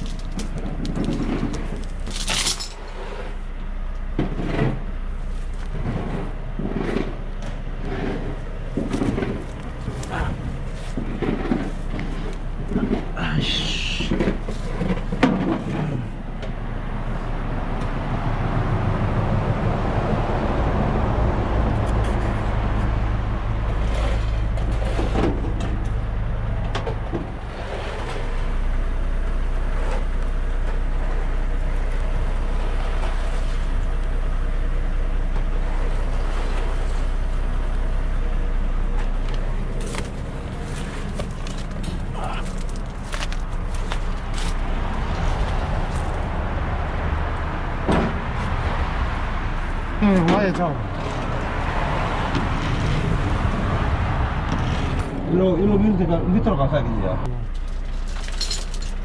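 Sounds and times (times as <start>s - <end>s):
truck diesel engine running: 0.0s - 59.0s
short metallic clanks: 2.0s - 2.9s.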